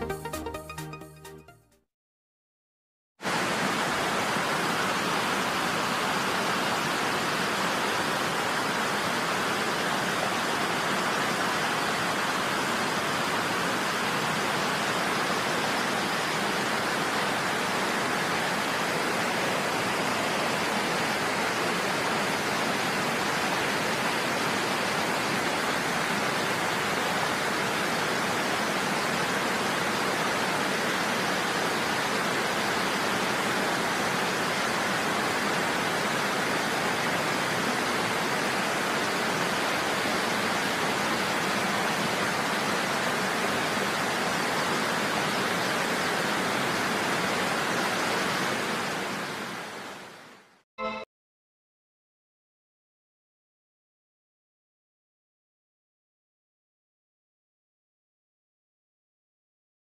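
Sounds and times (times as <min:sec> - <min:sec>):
waterfall rushing into stream: 0:03.2 - 0:51.0.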